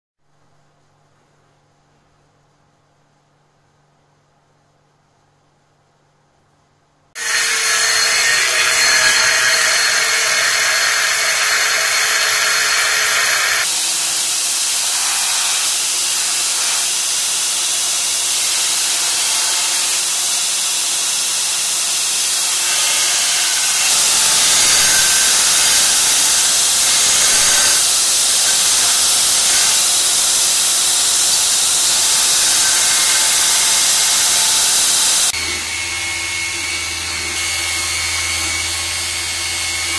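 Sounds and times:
belt grinder grinding metal: 7.2 - 35.3.

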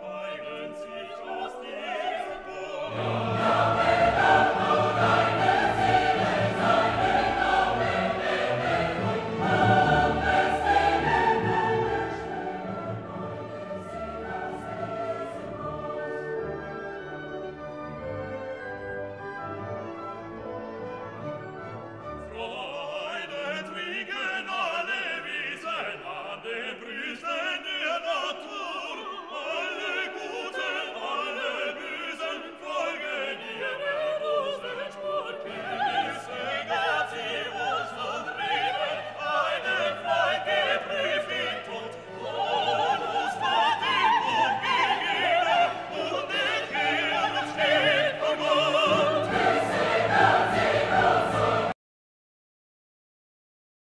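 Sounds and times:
operatic singing: 0.0 - 18.0, 22.2 - 51.8
orchestra playing: 2.8 - 23.7, 39.2 - 51.7.

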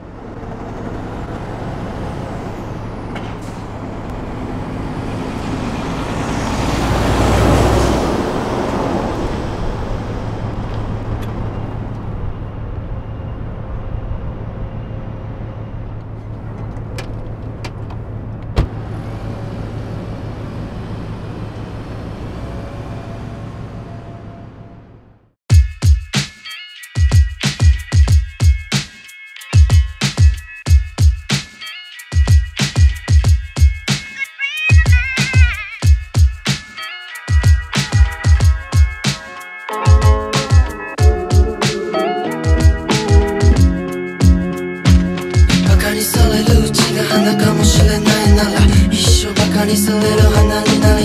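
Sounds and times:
vehicle passing: 0.0 - 25.3
traffic engine hum: 0.0 - 25.4.

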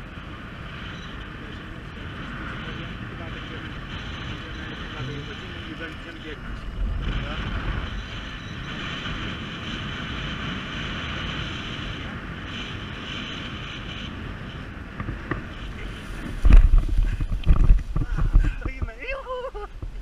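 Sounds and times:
wind rushing over microphone: 0.0 - 20.0
low thumps and rumbles of landing: 14.9 - 19.0.

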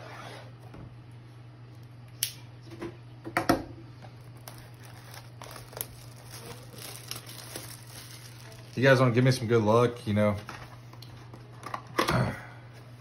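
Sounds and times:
plastic wrap tearing: 4.2 - 9.4.

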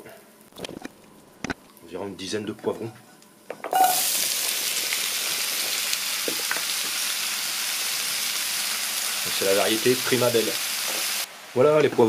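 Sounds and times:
sizzling in frying pan: 3.7 - 12.0.

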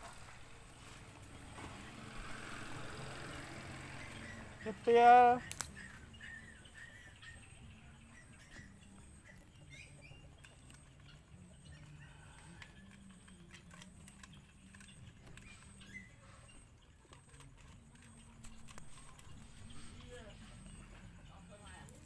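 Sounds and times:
dog eating from metal bowl: 5.7 - 22.0.

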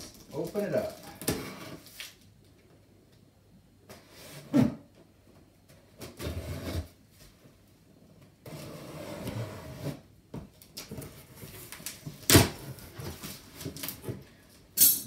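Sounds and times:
cardboard scraping and rustling: 10.9 - 14.3.

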